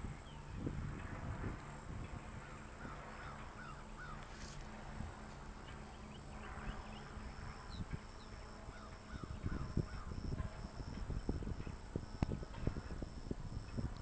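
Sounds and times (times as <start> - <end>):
low outdoor rumble: 0.0 - 14.0
birds chirping: 2.4 - 11.8.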